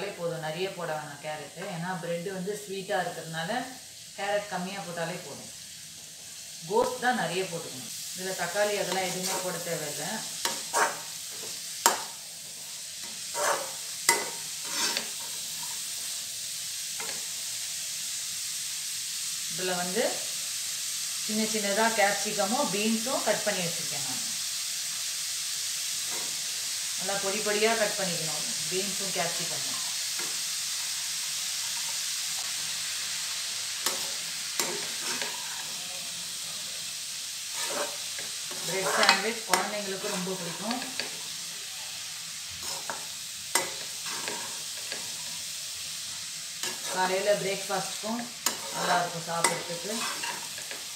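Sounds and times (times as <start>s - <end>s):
vegetables sizzling in oil: 0.0s - 50.9s
spatula scraping vegetables: 8.4s - 16.1s, 25.9s - 28.0s, 29.3s - 36.4s, 37.3s - 41.5s, 42.1s - 50.9s.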